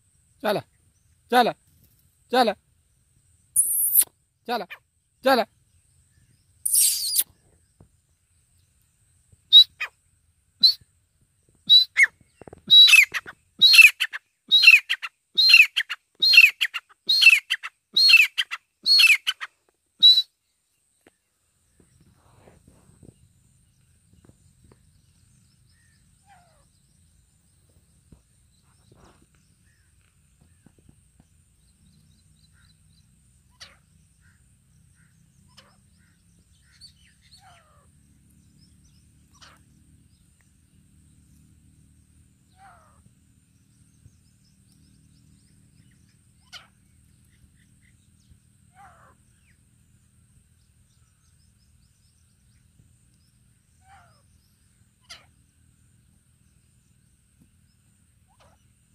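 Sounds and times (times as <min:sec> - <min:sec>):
francolin calling: 0:03.6 - 0:05.6, 0:06.2 - 0:07.3, 0:09.5 - 0:10.0, 0:10.6 - 0:10.9, 0:11.7 - 0:20.4.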